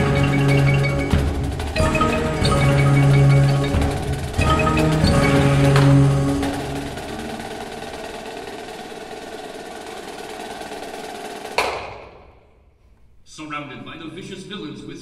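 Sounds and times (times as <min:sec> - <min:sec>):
marimba chord: 0:00.0 - 0:08.3
snare drum roll: 0:00.0 - 0:12.5
loud accented drum hit: 0:11.4 - 0:12.5.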